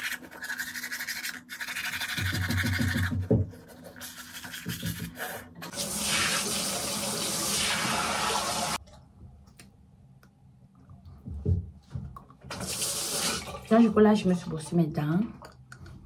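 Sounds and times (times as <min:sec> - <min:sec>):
tap water running: 0:04.7 - 0:08.8, 0:12.4 - 0:14.7.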